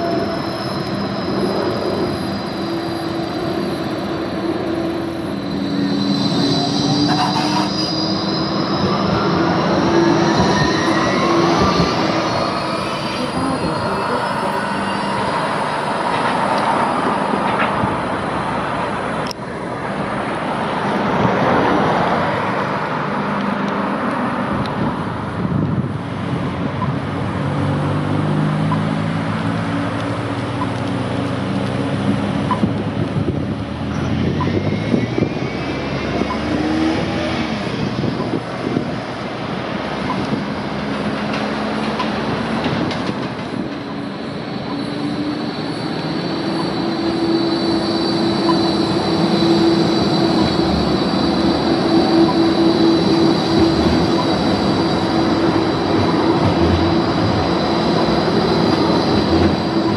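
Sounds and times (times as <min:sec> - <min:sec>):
road traffic passing: 0:00.0 - 0:59.9
tram approaching: 0:00.0 - 0:59.9.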